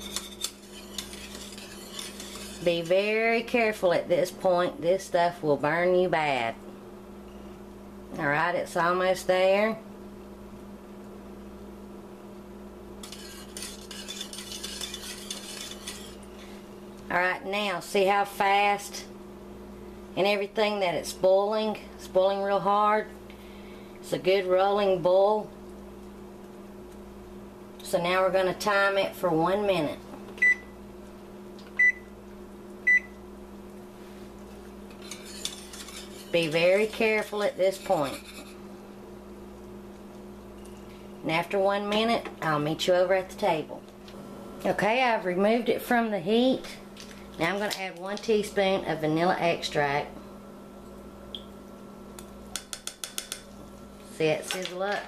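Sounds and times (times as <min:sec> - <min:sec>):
whisk scraping a saucepan: 0:00.0 - 0:03.7, 0:13.0 - 0:16.6, 0:34.5 - 0:38.7
steady low hum: 0:00.0 - 0:55.0.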